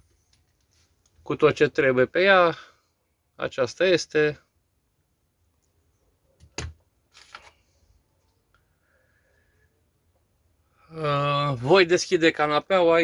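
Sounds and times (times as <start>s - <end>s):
brief rustle: 6.4s - 8.4s.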